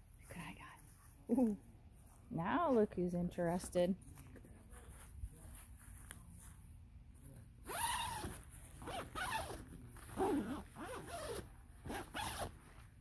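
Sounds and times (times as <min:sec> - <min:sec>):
tent zipper being pulled: 0:07.6 - 0:12.6.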